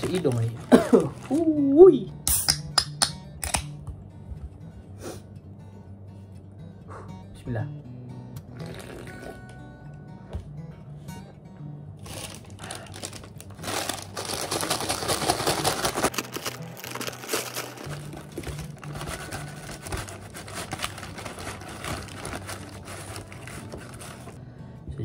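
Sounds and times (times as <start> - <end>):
fries shaken out of bag: 0.0 - 1.6, 12.0 - 24.4
paper bag crinkling: 0.0 - 1.6, 12.0 - 24.4
background music: 0.0 - 25.0.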